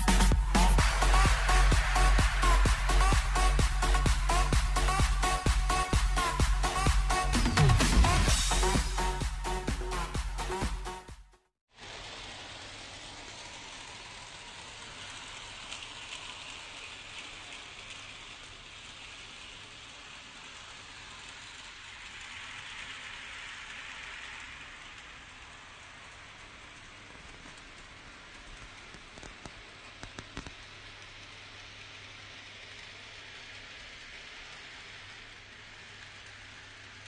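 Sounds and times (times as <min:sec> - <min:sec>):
model train rattling on track: 0:11.8 - 0:37.0.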